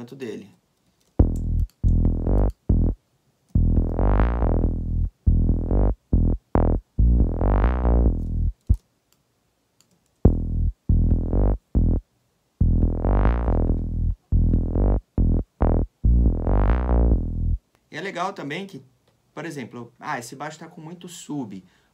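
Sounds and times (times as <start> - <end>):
synth bass line: 1.2 - 3.0, 3.6 - 8.7, 10.3 - 12.0, 12.6 - 17.6.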